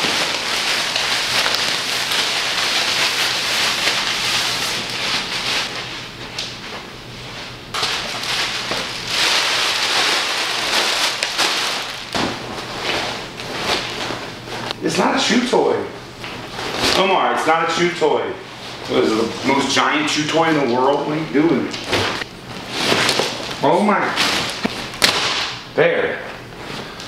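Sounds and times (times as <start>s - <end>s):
plastic film crinkling: 0.0s - 6.0s, 7.8s - 14.8s, 20.4s - 25.5s.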